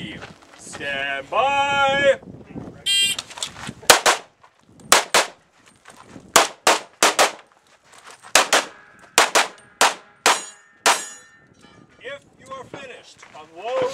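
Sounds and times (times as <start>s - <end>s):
pistol shots: 3.9s - 4.3s, 4.9s - 5.4s, 6.4s - 7.4s, 8.4s - 11.2s.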